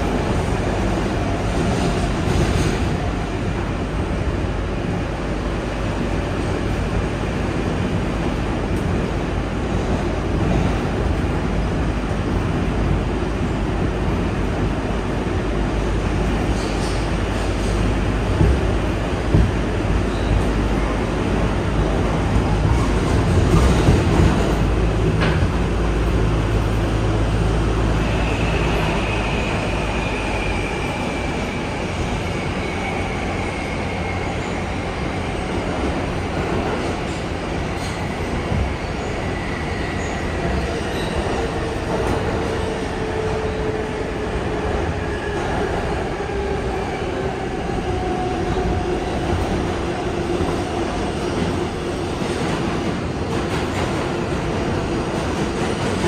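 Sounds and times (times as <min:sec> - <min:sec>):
train rumbling on rails: 0:00.0 - 0:56.0.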